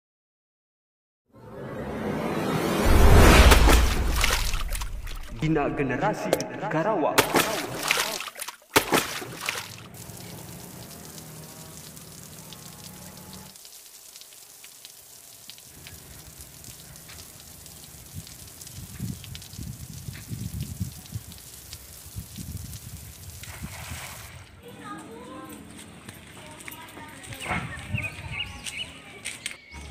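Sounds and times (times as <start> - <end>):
brief loud rush: 1.4 - 5.9
river water trickling and lapping: 3.6 - 5.4, 7.2 - 27.9
small drips and splashes: 7.2 - 24.7.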